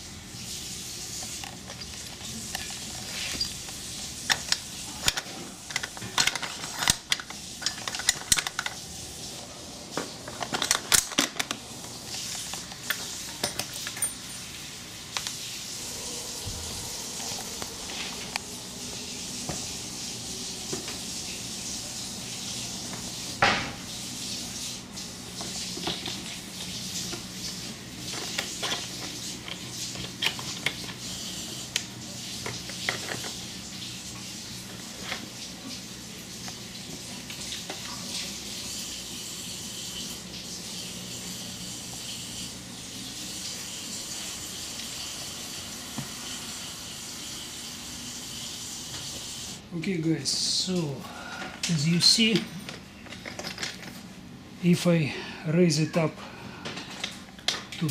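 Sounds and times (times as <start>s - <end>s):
steady hiss: 0.0s - 52.3s
metal hardware clinking: 12.9s - 14.5s.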